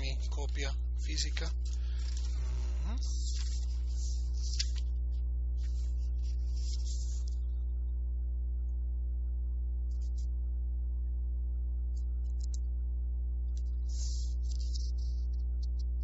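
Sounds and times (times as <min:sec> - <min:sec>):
electrical mains hum: 0:00.0 - 0:16.0
faint rustles: 0:00.3 - 0:07.6.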